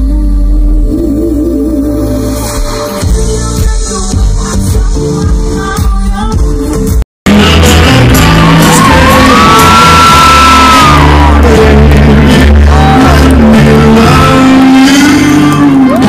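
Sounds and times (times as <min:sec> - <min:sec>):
loud music with heavy bass: 0:00.0 - 0:16.0
audience shouts and whoops: 0:07.3 - 0:16.0.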